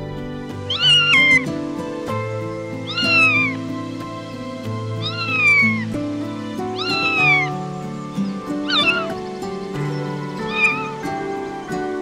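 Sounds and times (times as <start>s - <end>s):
background music: 0.0s - 12.0s
animal high-pitched call: 0.7s - 1.5s, 2.8s - 3.6s, 5.0s - 6.0s, 6.7s - 7.7s, 8.4s - 9.2s, 10.0s - 11.3s.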